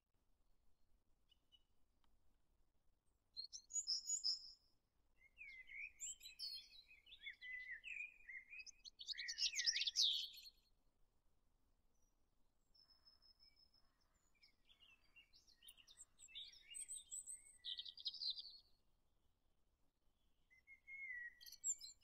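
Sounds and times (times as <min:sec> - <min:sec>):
songbirds chirping and warbling: 0:03.4 - 0:10.7, 0:11.9 - 0:18.8, 0:20.4 - 0:22.0.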